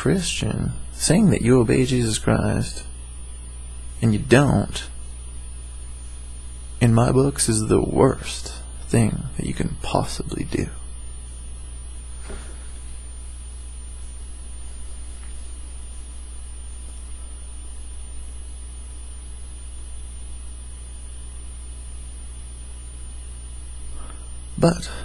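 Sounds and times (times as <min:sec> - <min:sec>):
low electrical hum: 0:00.0 - 0:25.0
thin high whine: 0:00.0 - 0:25.0
even hiss: 0:23.8 - 0:25.0.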